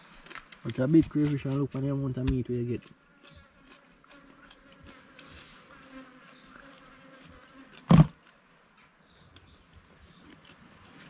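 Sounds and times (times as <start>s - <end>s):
insects buzzing: 2.0s - 8.2s
loud thump: 7.9s - 8.1s.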